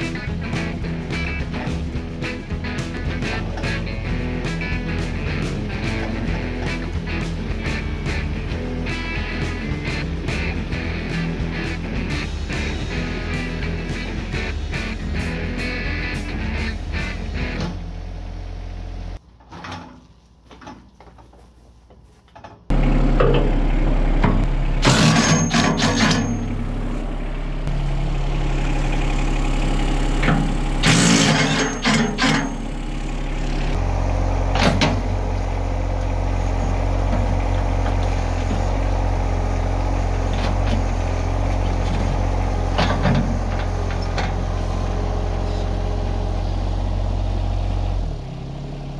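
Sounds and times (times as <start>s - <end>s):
tractor diesel engine idling: 0.0s - 19.2s, 22.7s - 48.9s.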